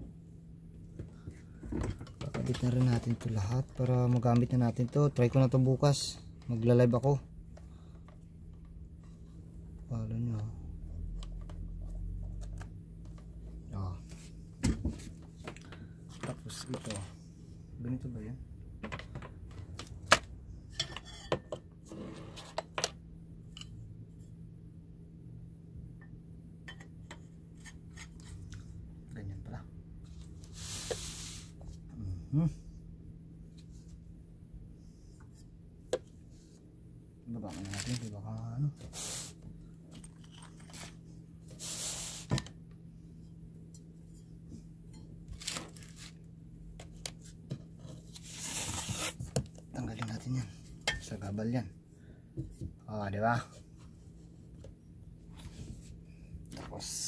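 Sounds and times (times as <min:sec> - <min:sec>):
steady low hum: 0:00.0 - 0:57.0
rustling of packaging: 0:37.4 - 0:38.3, 0:45.3 - 0:46.3.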